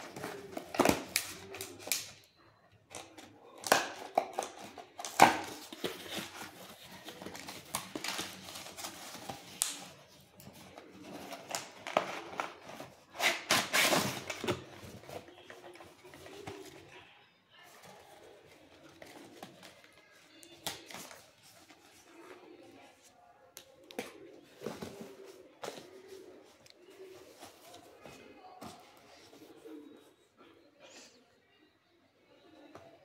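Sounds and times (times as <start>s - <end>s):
packing tape tearing: 13.1s - 14.6s.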